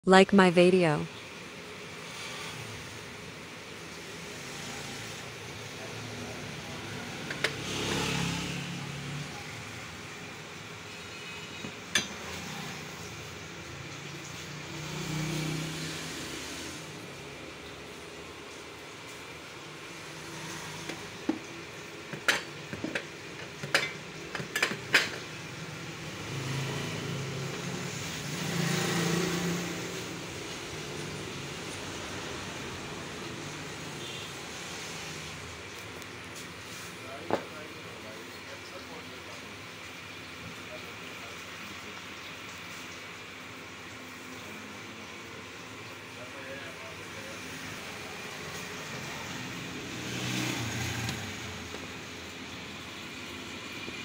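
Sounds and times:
vehicle engine passing: 4.0 - 10.0, 12.2 - 18.0, 19.7 - 21.3, 25.8 - 35.8, 46.4 - 53.2.

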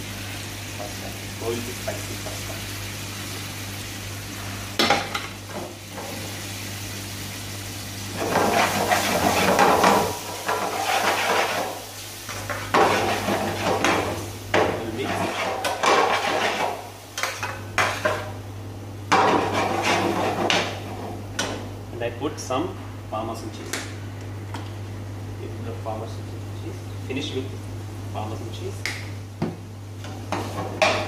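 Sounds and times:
sauce sizzling: 0.0 - 18.5
steady low hum: 0.0 - 31.0
metal utensil scraping a pan: 15.0 - 18.1, 19.2 - 20.6.

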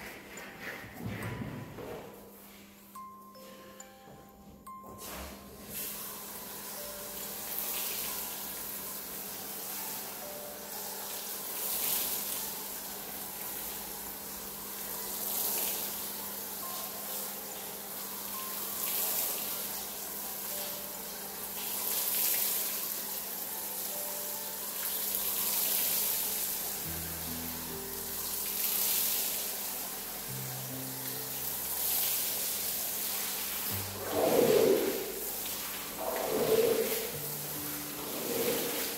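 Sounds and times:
pressure washer spray hissing: 28.0 - 38.9.

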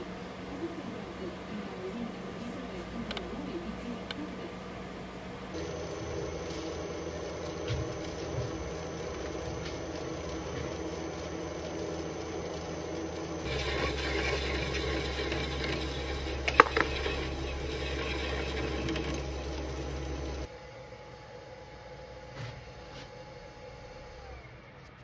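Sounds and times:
metal lathe humming: 5.6 - 20.5
tool scraping spinning metal: 5.6 - 20.5.

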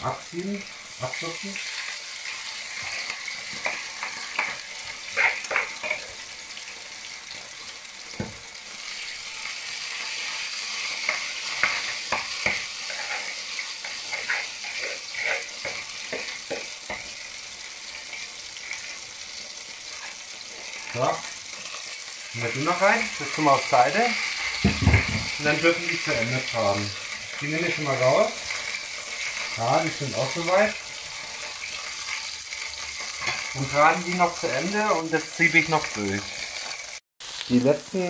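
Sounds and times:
potato frying in oil: 0.0 - 38.0.

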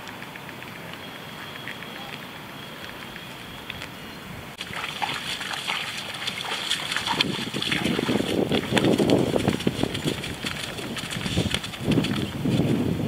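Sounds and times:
water splashing and sloshing: 4.5 - 12.7.

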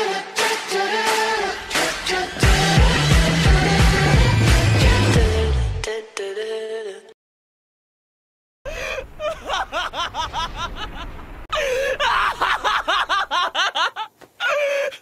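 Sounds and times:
man laughing hysterically: 8.7 - 15.0.

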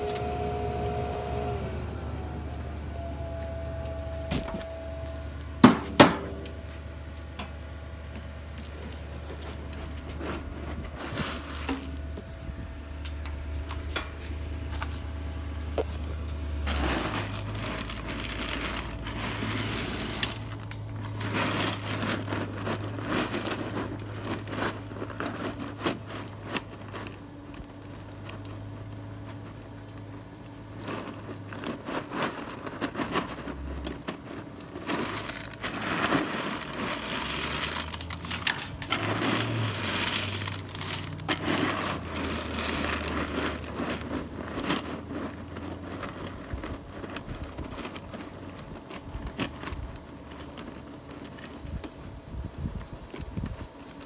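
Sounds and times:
grill motor humming: 0.0 - 28.0
rustling crackling handling noise: 0.0 - 54.0.

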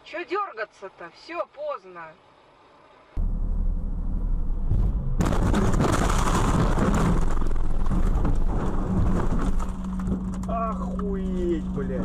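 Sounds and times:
low engine drone: 2.3 - 5.7, 7.0 - 12.0
car crash impact: 4.6 - 10.5
breaking glass: 5.2 - 10.1
crunching metal: 5.2 - 12.0.

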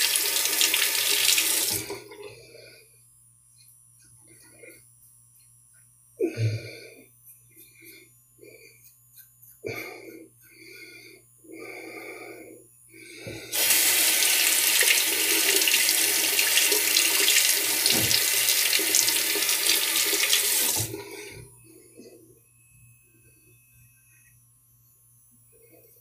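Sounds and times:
tap running into sink: 13.6 - 21.0.

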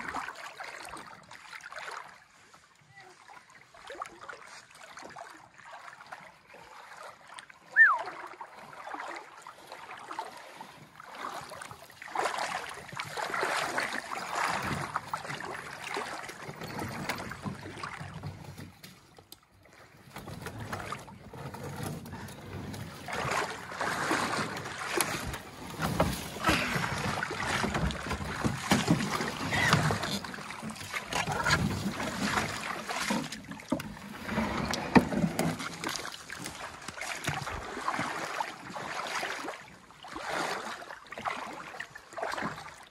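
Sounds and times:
paddle strokes and splashes: 0.0 - 42.9
running water around canoe: 0.0 - 42.9.

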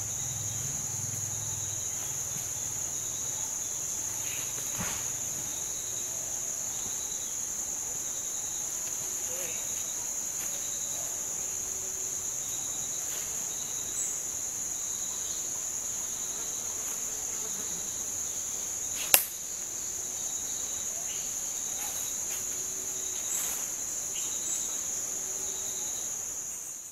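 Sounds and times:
high-pitched insect chorus: 0.0 - 26.9
sharp click: 19.0 - 19.4.

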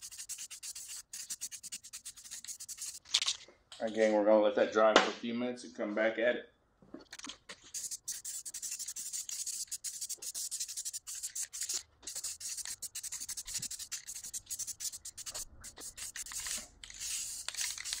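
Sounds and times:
rapid scratchy rubbing: 0.0 - 3.0, 7.1 - 18.0.

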